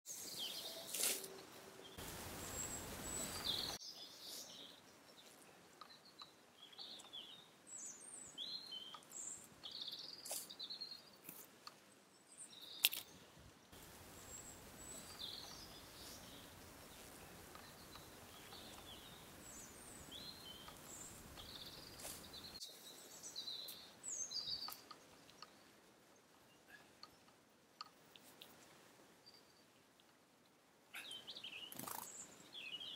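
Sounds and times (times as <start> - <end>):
songbirds warbling: 0.2 - 11.2, 12.2 - 27.3
faint steady rushing noise: 1.3 - 3.8, 13.7 - 23.2.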